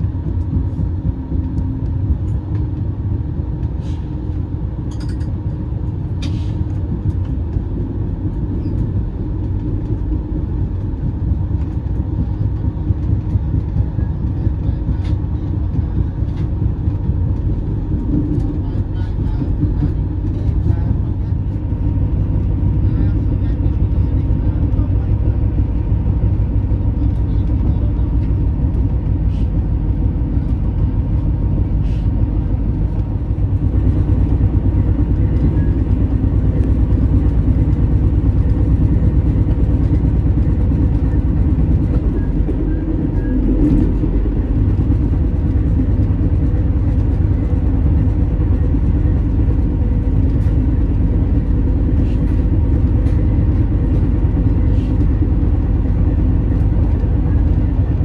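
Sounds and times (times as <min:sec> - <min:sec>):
train rumbling: 0:00.0 - 0:58.0.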